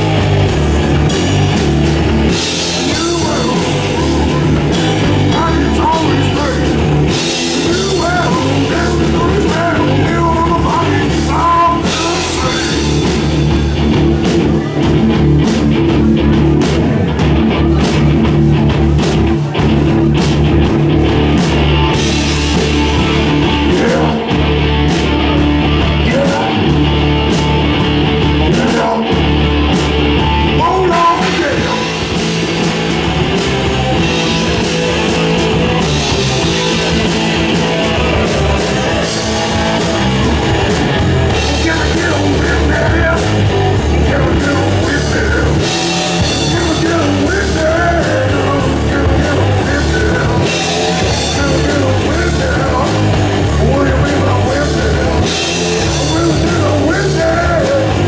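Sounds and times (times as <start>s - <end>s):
live rock band playing: 0.0s - 58.0s
person singing into microphone: 2.6s - 13.2s, 23.0s - 24.4s, 25.8s - 26.7s, 28.5s - 29.2s, 30.6s - 32.0s, 41.3s - 58.0s.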